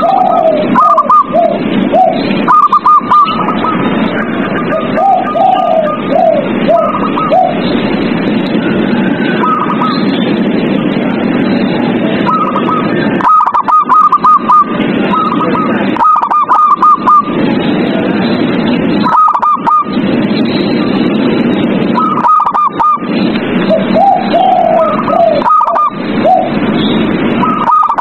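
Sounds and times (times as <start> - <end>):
dove cooing: 0.0 - 7.9, 8.5 - 10.2, 12.2 - 17.4, 19.0 - 20.0, 21.9 - 28.0
steady background noise: 0.0 - 28.0.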